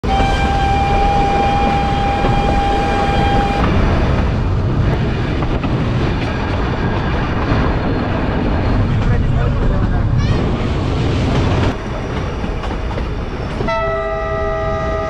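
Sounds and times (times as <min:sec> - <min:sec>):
train horn: 0:00.0 - 0:03.7, 0:13.7 - 0:15.0
train rumbling: 0:00.0 - 0:15.0.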